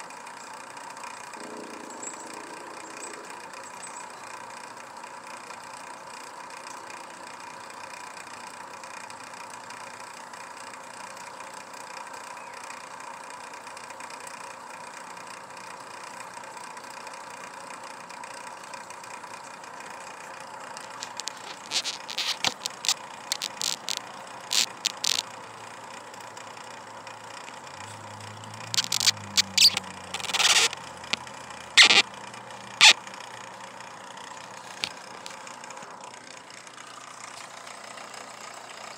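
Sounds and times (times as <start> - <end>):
low drone: 1.1 - 4.8.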